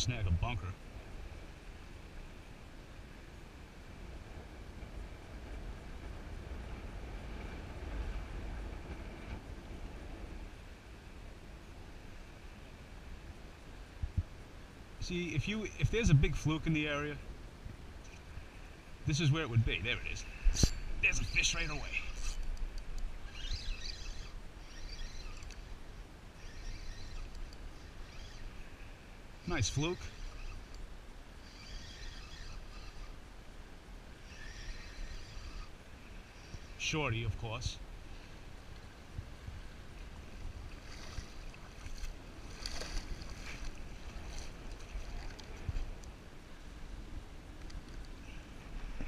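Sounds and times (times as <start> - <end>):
wind rumbling on microphone: 0.0 - 49.0
water splashing: 40.8 - 45.7.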